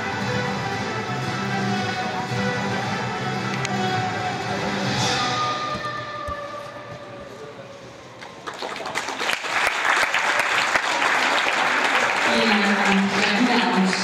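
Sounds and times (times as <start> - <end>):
music: 0.0 - 8.2
audience applause: 8.2 - 14.0.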